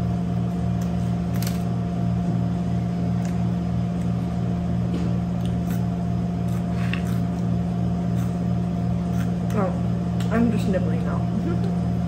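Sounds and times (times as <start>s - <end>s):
low machine hum: 0.0s - 12.0s
person chewing: 3.1s - 4.5s, 5.2s - 9.6s.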